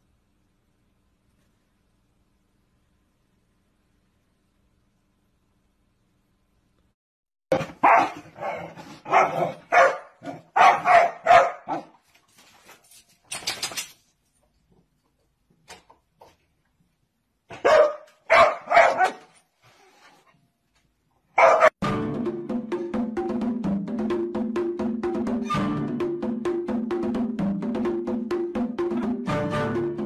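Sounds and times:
dog barking: 7.5s - 12.0s, 17.5s - 19.3s, 21.3s - 21.8s.

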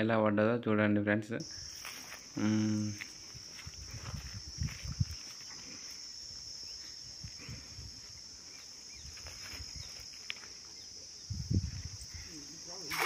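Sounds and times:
insects droning in a chorus: 1.3s - 13.0s.

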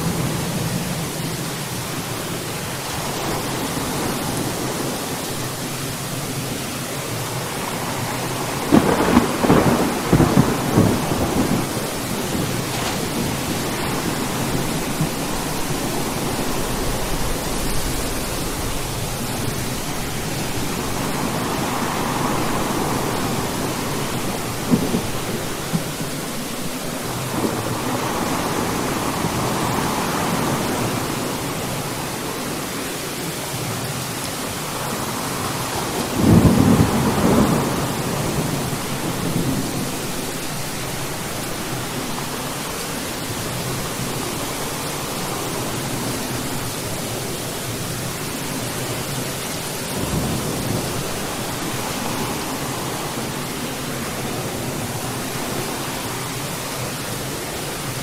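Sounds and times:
steady rain: 0.0s - 58.0s
rolling thunder rumbles: 7.3s - 32.2s, 34.7s - 46.9s
sharp crackling thunderclap: 8.2s - 31.3s, 35.0s - 42.4s.

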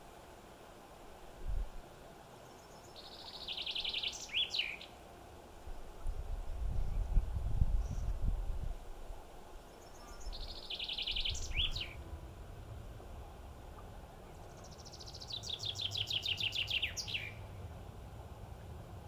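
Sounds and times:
songbird singing: 2.3s - 5.0s, 9.5s - 12.2s, 13.2s - 17.8s.

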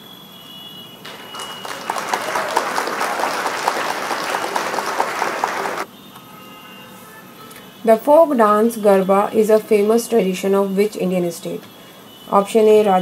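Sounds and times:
crowd clapping: 1.0s - 5.9s.

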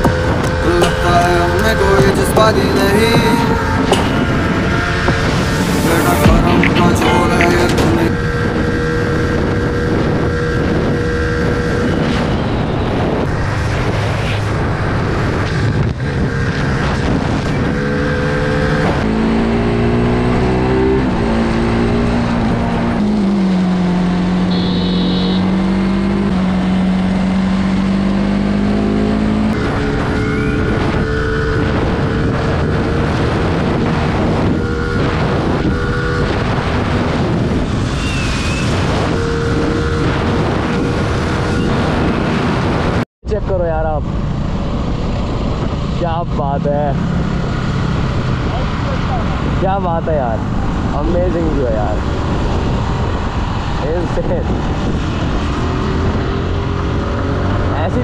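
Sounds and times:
wind noise on microphone: 0.0s - 58.0s
motorcycle engine running: 23.2s - 27.8s.

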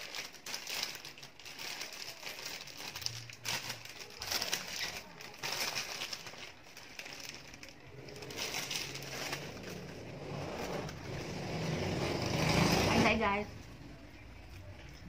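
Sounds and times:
wrapper crinkling: 0.0s - 13.2s.

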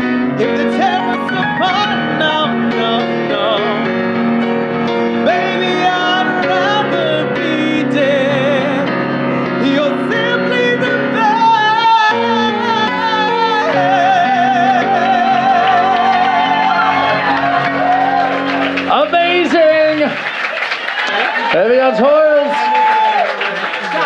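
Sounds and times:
person singing: 0.0s - 4.0s, 5.0s - 17.9s
piano accompaniment: 0.0s - 24.0s.

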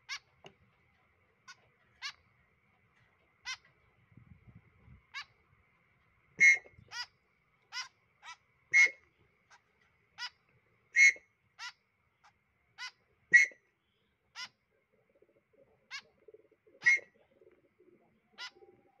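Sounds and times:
fledgling birds begging calls: 0.0s - 0.4s, 1.5s - 2.3s, 3.4s - 3.8s, 5.0s - 5.4s, 6.4s - 19.0s.

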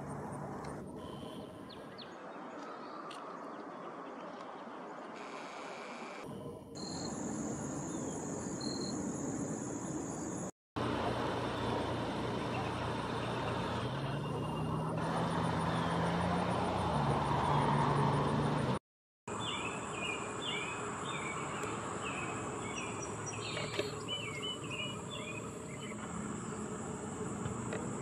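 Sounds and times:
road traffic drone: 0.0s - 2.5s, 6.2s - 28.0s
high insect buzz: 19.4s - 28.0s.

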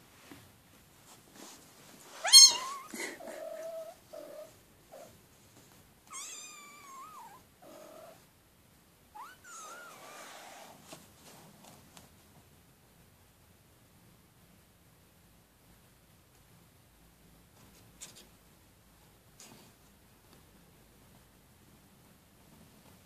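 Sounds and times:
kittens mewing: 2.2s - 4.5s.

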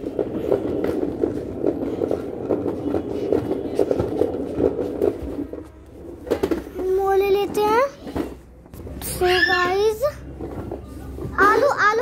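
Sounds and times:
toy car wheels rumbling on tiles: 0.0s - 8.4s.

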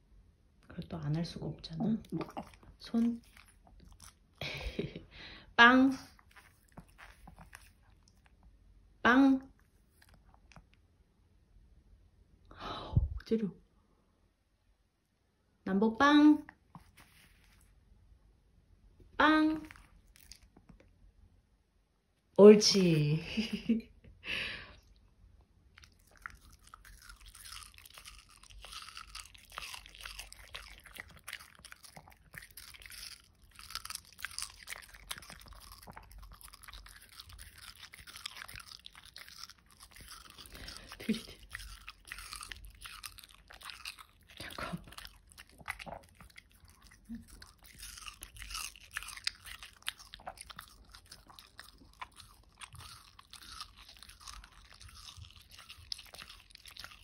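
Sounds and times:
dog crunching watermelon: 0.7s - 4.9s, 5.9s - 8.5s, 19.5s - 20.8s, 25.7s - 57.0s.

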